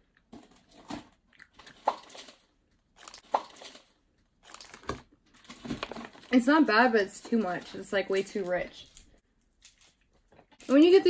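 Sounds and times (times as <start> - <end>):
person chewing candy: 1.2 - 4.8.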